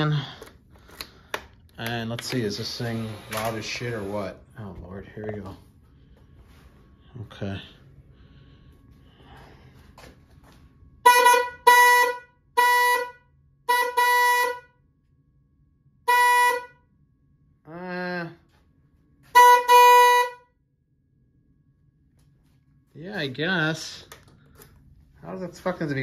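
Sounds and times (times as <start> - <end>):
electric horn honks: 11.0 - 14.8, 16.0 - 16.9, 19.2 - 20.6.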